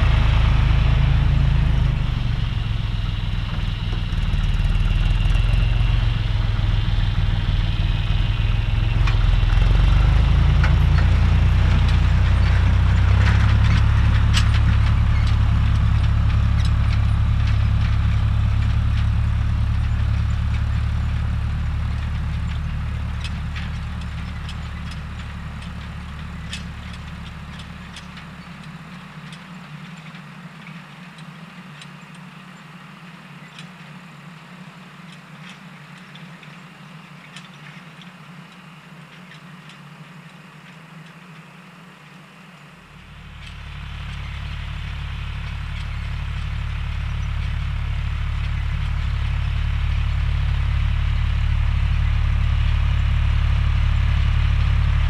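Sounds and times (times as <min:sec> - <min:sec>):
tractor engine droning: 0:00.0 - 0:55.0
faint clicks and rattles: 0:22.0 - 0:50.0.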